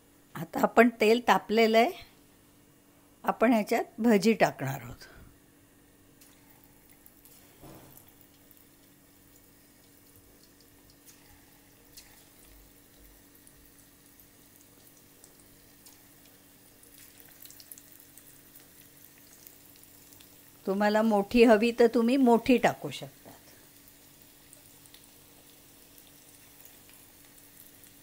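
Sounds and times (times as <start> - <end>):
batter plopping into oil: 6.2 - 20.4
batter sizzling in hot oil: 6.2 - 28.0.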